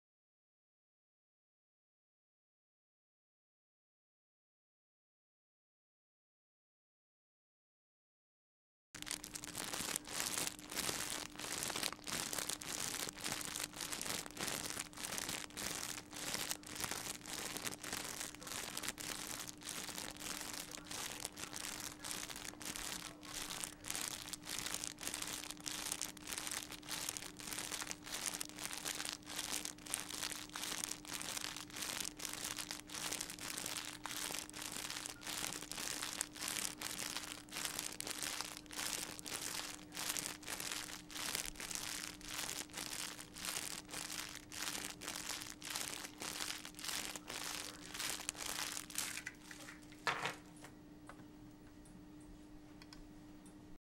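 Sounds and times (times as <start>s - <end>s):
crinkling crackling noise: 9.0s - 51.2s
faint steady hum: 9.0s - 53.8s.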